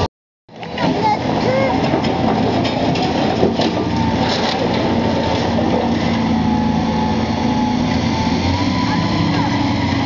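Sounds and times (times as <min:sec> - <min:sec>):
excavator engine and hydraulics: 0:00.0 - 0:10.0.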